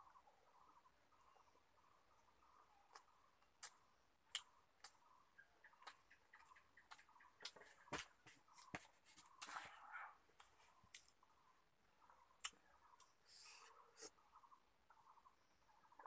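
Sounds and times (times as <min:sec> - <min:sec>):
mouth clicks and lip smacks: 0:02.9 - 0:05.0, 0:05.7 - 0:07.6, 0:12.4 - 0:13.2.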